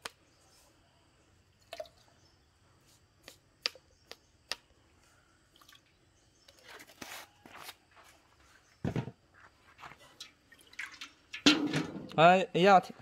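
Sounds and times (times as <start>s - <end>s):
liquid dripping: 10.2s - 11.6s.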